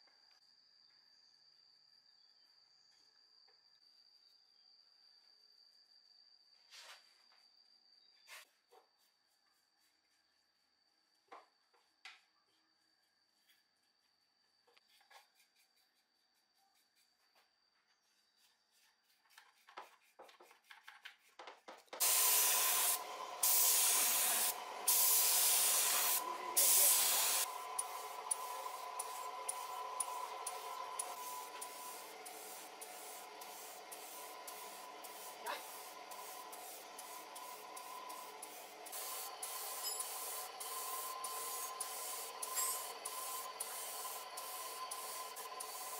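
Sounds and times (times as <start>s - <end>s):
paint scraping: 18.0s - 45.9s
paint spray gun hissing: 22.0s - 45.9s.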